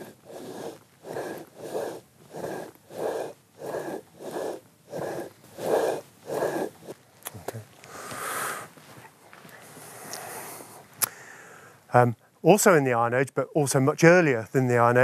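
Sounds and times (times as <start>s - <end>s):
hand mill stone grinding grain: 0.0s - 7.9s.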